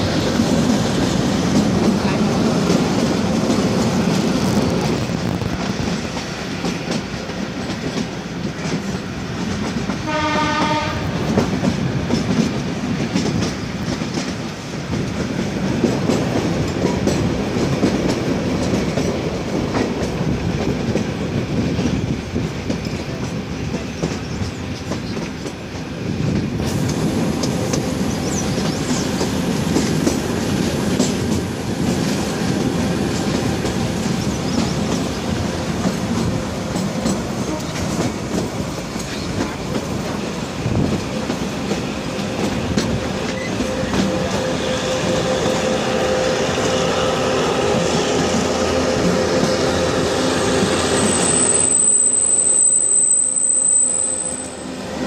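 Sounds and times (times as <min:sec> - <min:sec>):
train wheels rumbling on track: 0:00.0 - 0:55.0
train horn blast: 0:10.0 - 0:11.4, 0:37.4 - 0:38.0, 0:42.2 - 0:55.0.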